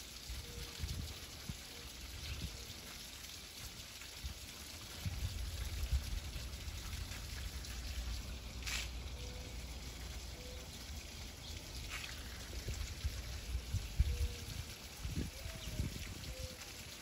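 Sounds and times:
wind buffeting microphone: 0:12.6 - 0:16.4.

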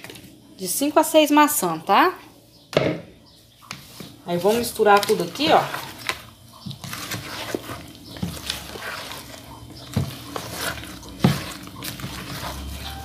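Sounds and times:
utensil scraping plastic bowl: 0:03.8 - 0:13.0.

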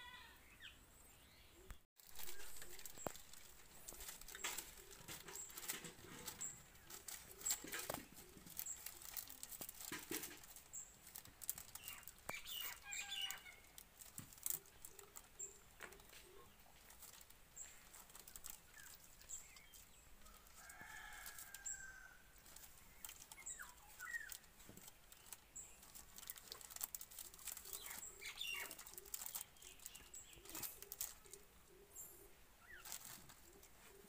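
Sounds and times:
plastic packet crinkling: 0:02.0 - 0:31.5, 0:32.7 - 0:33.7
bird chirps: 0:11.6 - 0:13.8.

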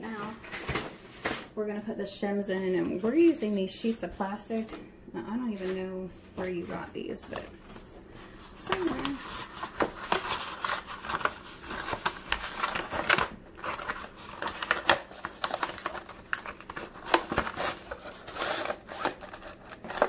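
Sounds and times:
plastic sheets crinkling: 0:05.5 - 0:20.0.

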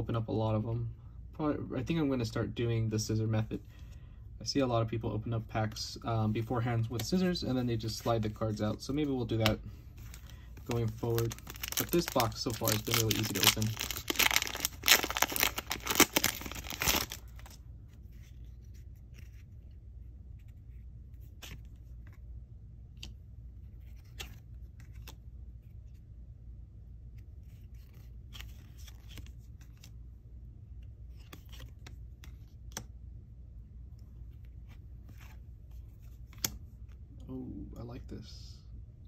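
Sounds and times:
cards clicking and rustling: 0:06.9 - 0:19.7, 0:23.9 - 0:25.2, 0:27.5 - 0:29.9, 0:31.1 - 0:32.9, 0:36.0 - 0:37.0
foil pack crinkling: 0:10.1 - 0:17.6.

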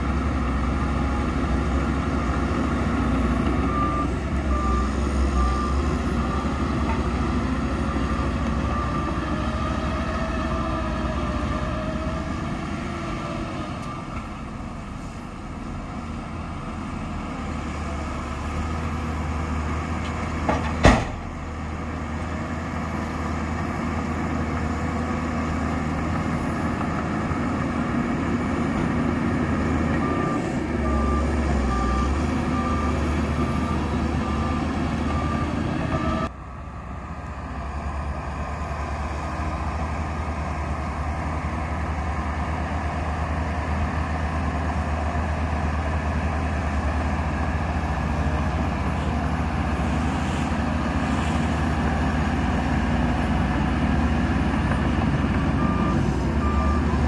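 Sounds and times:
heavy machinery diesel engines: 0:00.0 - 0:57.0
reversing alarm beeping: 0:03.3 - 0:06.9, 0:30.0 - 0:36.3, 0:55.2 - 0:57.0.

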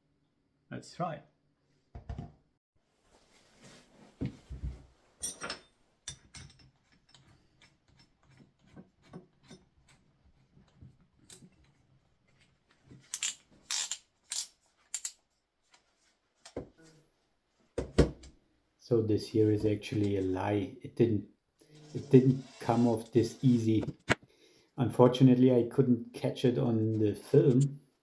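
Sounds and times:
metal tools clinking on workbench: 0:05.2 - 0:07.2.

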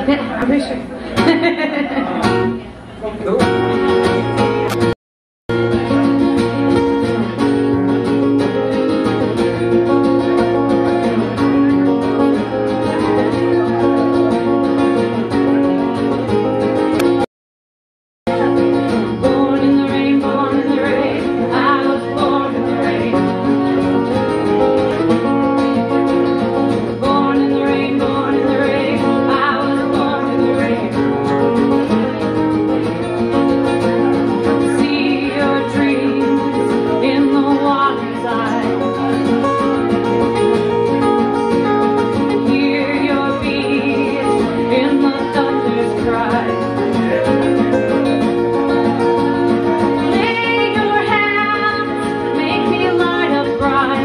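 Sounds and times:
strummed acoustic guitar: 0:00.0 - 0:17.3, 0:18.3 - 0:54.0
electric guitar: 0:03.4 - 0:04.9, 0:05.5 - 0:17.2, 0:18.3 - 0:54.0
woman singing: 0:18.9 - 0:23.7, 0:26.9 - 0:31.4, 0:34.5 - 0:39.0, 0:42.2 - 0:47.5, 0:49.9 - 0:54.0.

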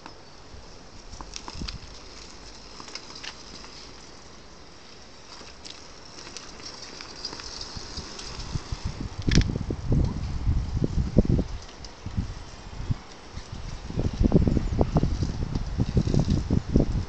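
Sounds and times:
faint outdoor hiss: 0:00.0 - 0:17.0
low rumbling on microphone: 0:07.8 - 0:17.0.

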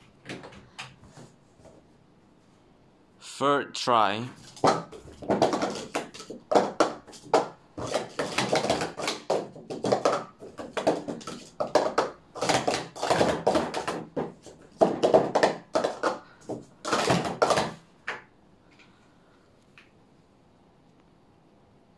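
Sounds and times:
plastic cups clattering: 0:04.4 - 0:18.3.

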